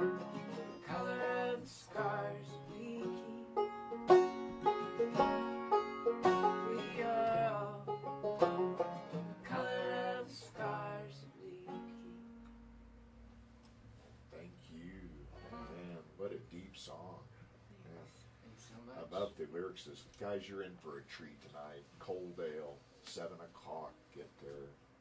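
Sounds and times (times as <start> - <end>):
banjo: 0.0 - 12.9
acoustic guitar: 0.0 - 13.3, 15.2 - 16.0
man singing: 0.7 - 3.5, 6.5 - 7.9, 9.5 - 11.9
woman singing: 0.7 - 3.6, 6.5 - 7.9, 9.5 - 12.2.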